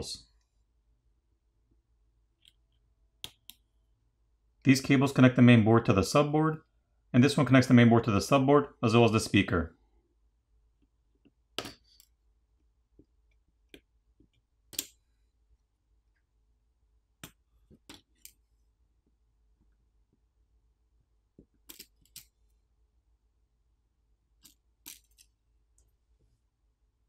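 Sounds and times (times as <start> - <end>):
small clicks and taps: 13.0 - 15.0.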